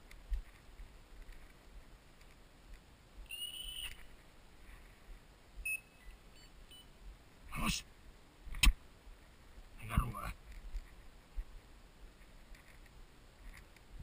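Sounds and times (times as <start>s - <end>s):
electronic collar beeping: 3.3s - 4.0s, 5.6s - 6.9s.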